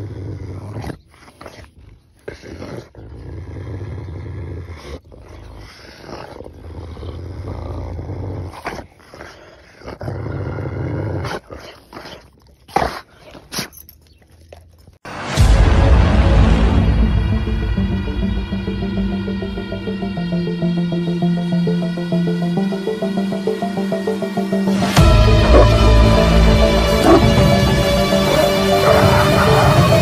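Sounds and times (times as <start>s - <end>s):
dogs growling low: 0.0s - 13.5s, 25.5s - 25.9s, 26.6s - 30.0s.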